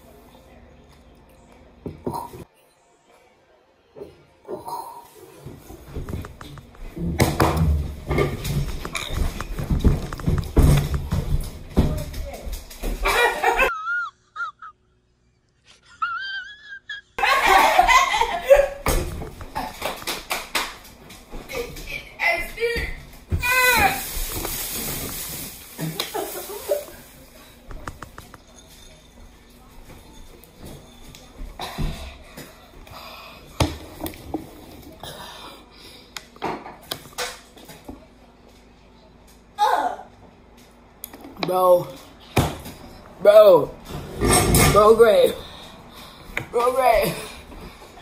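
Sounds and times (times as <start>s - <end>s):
loud laughter: 13.0s - 14.9s, 15.7s - 18.8s.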